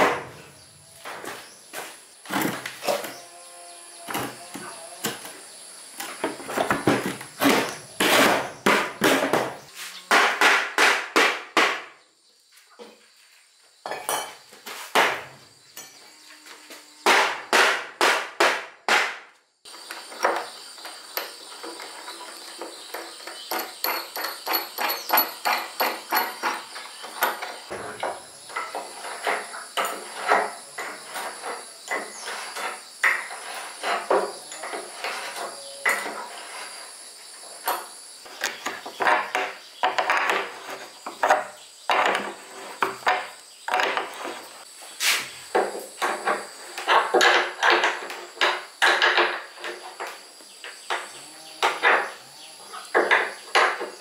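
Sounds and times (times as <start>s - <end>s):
hammer strikes: 10.1s - 11.9s, 17.0s - 19.3s.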